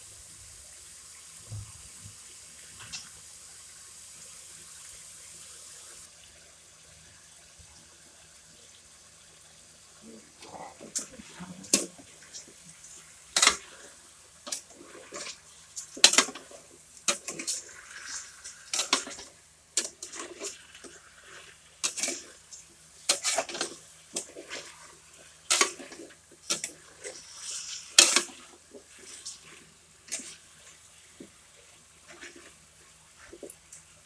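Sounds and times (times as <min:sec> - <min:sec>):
water splashing: 0:10.0 - 0:34.0.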